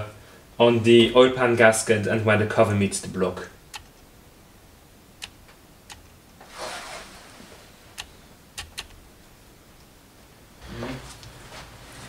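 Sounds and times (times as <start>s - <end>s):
small sharp clicks: 8.0s - 9.0s.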